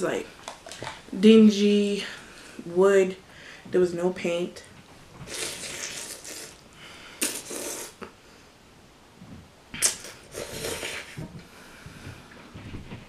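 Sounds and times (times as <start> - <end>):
noodles being slurped and chewed: 5.3 - 6.6, 7.2 - 8.1, 9.8 - 11.3.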